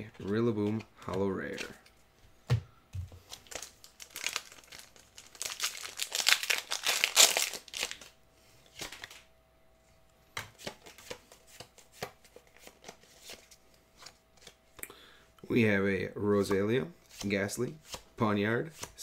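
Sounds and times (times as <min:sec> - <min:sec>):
foil wrapper crinkling and tearing: 0:03.3 - 0:08.1.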